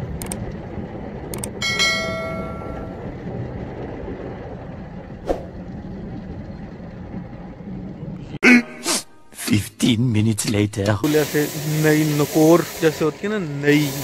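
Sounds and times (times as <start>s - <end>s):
click sound effect: 0.2s - 0.4s, 1.3s - 1.6s
bell-like chime: 1.6s - 3.0s
car wash water spray: 11.1s - 14.0s.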